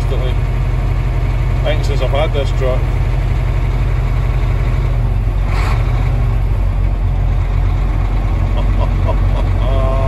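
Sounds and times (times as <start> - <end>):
truck diesel engine idling: 0.0 - 10.0.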